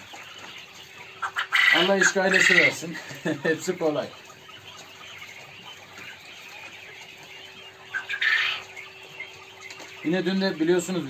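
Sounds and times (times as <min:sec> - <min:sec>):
chickens calling: 0:00.0 - 0:11.0
chicken squawk: 0:00.8 - 0:10.8.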